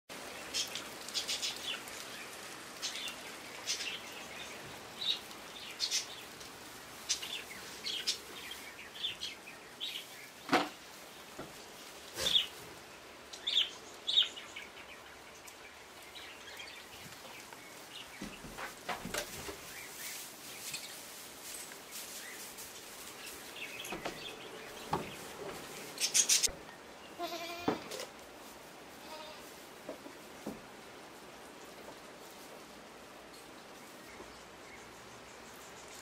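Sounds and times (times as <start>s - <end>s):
background hiss: 0.1s - 36.0s
small birds chirping: 0.2s - 27.6s, 31.5s - 36.0s.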